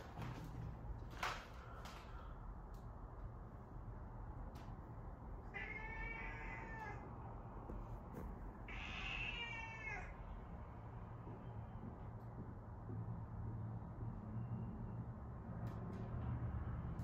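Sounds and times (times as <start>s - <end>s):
cat meowing: 5.5s - 7.1s, 8.7s - 10.2s.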